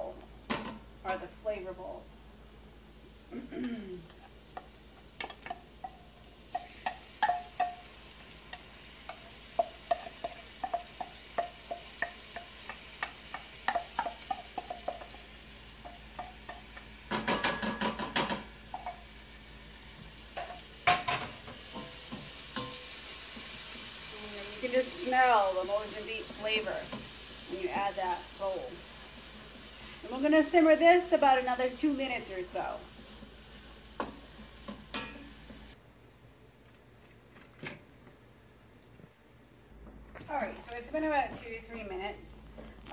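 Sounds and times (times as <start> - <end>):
onions sizzling: 0.0 - 35.8
wooden spoon stirring pan: 4.1 - 19.0, 19.9 - 35.8.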